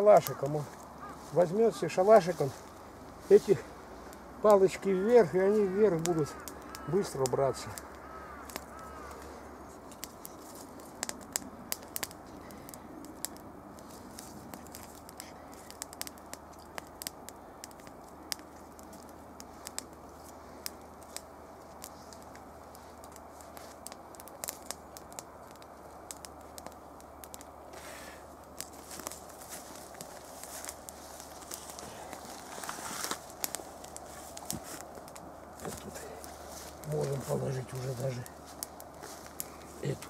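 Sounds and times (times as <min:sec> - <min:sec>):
campfire crackling: 0:00.0 - 0:40.0
sharp fire pops: 0:05.9 - 0:09.3, 0:09.9 - 0:40.0.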